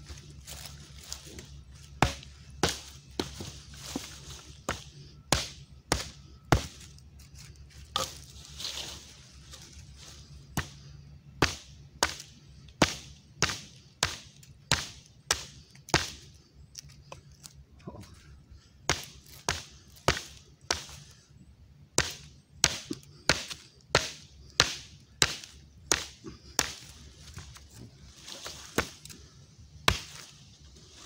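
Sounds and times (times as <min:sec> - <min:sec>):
axe chopping a branch: 0:00.5 - 0:07.0, 0:07.9 - 0:09.0, 0:10.5 - 0:10.8, 0:11.4 - 0:16.3, 0:18.9 - 0:21.1, 0:22.0 - 0:29.2, 0:29.8 - 0:30.4.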